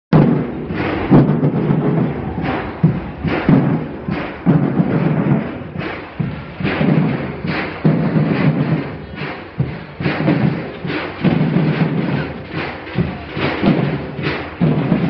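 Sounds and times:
booming bass drum beats: 0.1 - 15.0
street drum band playing: 0.1 - 15.0.

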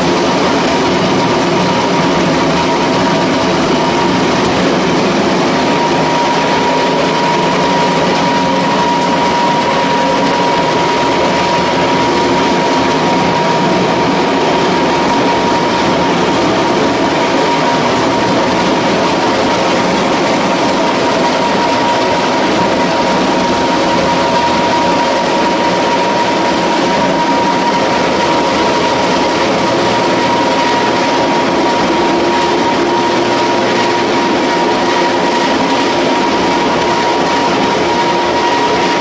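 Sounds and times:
high whine: 0.0 - 39.0
pellet mill running: 0.0 - 39.0.

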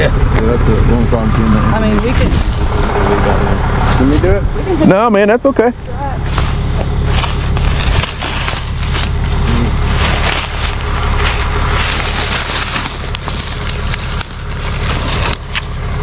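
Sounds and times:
truck engine idling: 0.0 - 16.0
brush crackling and crunching: 1.8 - 4.2, 5.8 - 16.0.

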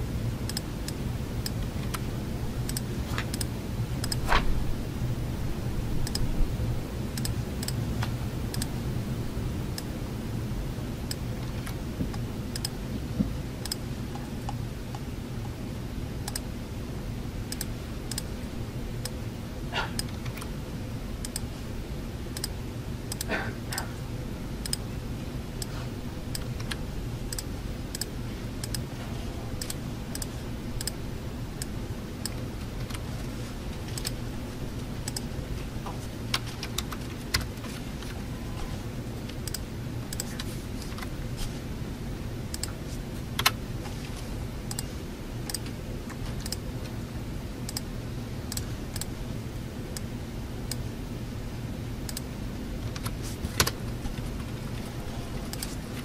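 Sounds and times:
ventilation hum: 0.0 - 56.0
keyboard typing: 6.0 - 6.3, 33.8 - 34.2.

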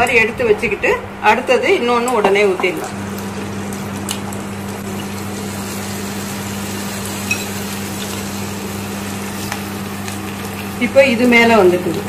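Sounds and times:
low steady hum: 0.0 - 12.0
batter sizzling in hot oil: 2.8 - 12.0.

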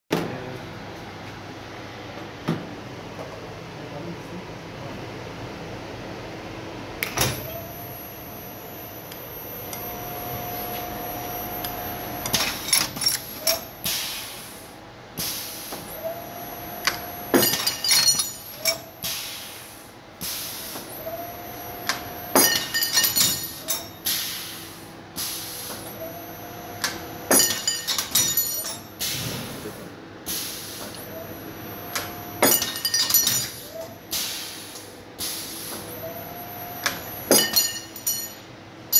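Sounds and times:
motor whine: 7.0 - 12.8, 20.8 - 22.4, 25.8 - 27.3, 31.0 - 32.4
pneumatic air hissing: 13.8 - 15.9, 19.0 - 20.9, 24.0 - 25.9, 29.0 - 31.0, 34.1 - 35.9.

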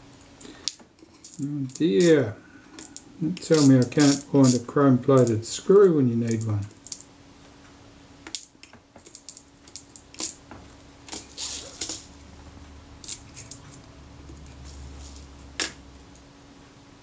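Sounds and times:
faint steady hum: 0.0 - 17.0
metal screws rattling in plastic box: 1.0 - 2.2, 2.8 - 4.6, 8.3 - 10.4.

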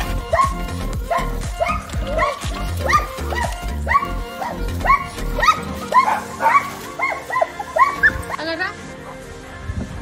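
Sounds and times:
music with heavy bass beat: 0.0 - 6.4
dog barking: 0.0 - 8.4.

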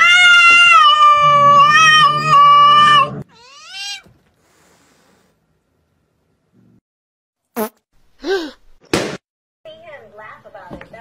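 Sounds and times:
cat yowling: 0.0 - 4.1.

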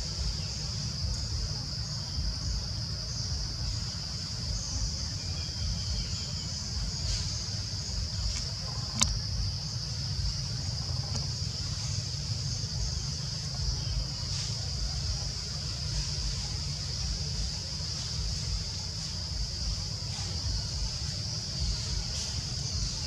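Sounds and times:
insects droning: 0.0 - 23.0
sharp click: 8.3 - 9.2.

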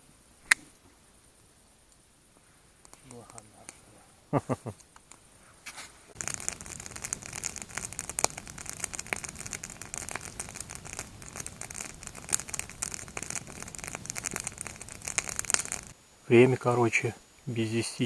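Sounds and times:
hiss of flames: 2.4 - 18.0
campfire pops and snaps: 2.8 - 5.3, 6.1 - 17.6.

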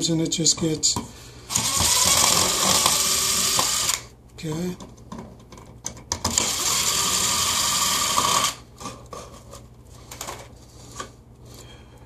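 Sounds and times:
cordless drill spinning: 1.5 - 4.0, 6.3 - 8.6.

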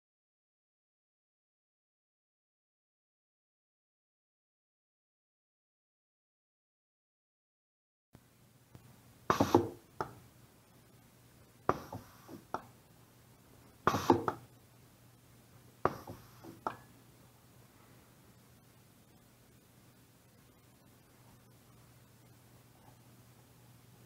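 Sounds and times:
short hiss of air: 13.9 - 14.4.

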